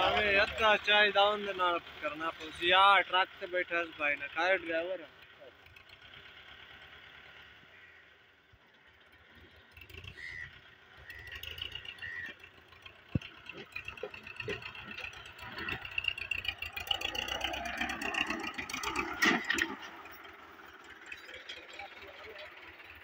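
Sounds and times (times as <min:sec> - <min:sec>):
tractor engine running: 0:00.0 - 0:23.0
loader clanks and rattles: 0:08.7 - 0:23.0.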